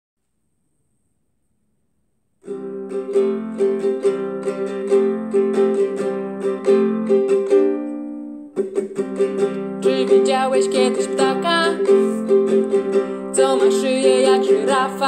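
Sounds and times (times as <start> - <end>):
guitalele strumming: 2.4 - 15.0.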